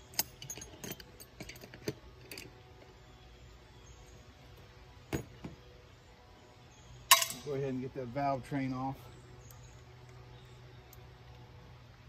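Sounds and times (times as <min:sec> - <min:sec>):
metal hand tools clinking: 0:07.1 - 0:07.6.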